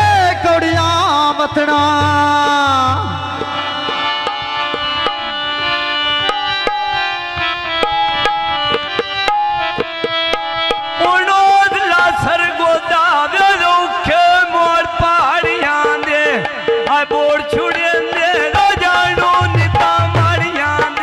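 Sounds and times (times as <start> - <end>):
man singing: 0.0 - 4.9, 10.9 - 21.0
sustained melodic instrument: 1.9 - 13.0.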